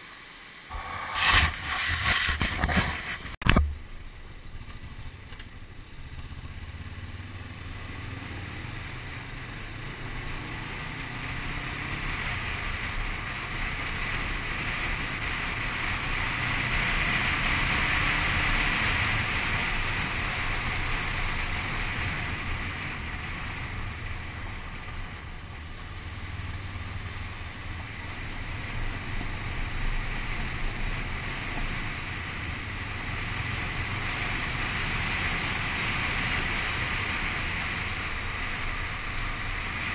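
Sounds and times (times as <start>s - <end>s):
wind rush over microphone: 0.7s - 3.7s
motorcycle engine running: 0.7s - 39.9s.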